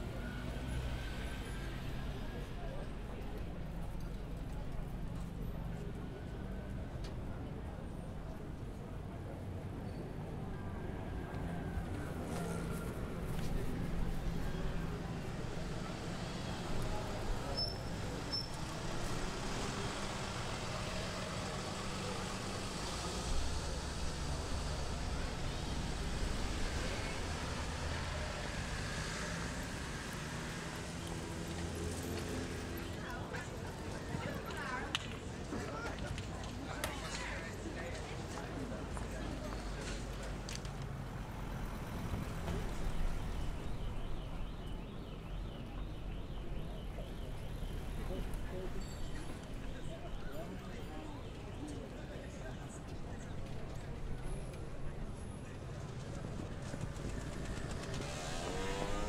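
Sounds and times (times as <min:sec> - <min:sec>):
city traffic rumble: 0:00.0 - 0:59.0
street noise: 0:00.0 - 0:59.0
engine running at low revs: 0:56.1 - 0:59.0.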